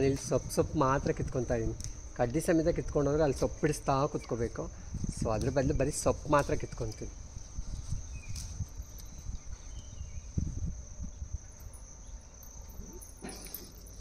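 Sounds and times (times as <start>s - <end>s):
leaves rustling by hand: 0.0s - 10.7s
crickets trilling: 0.0s - 14.0s.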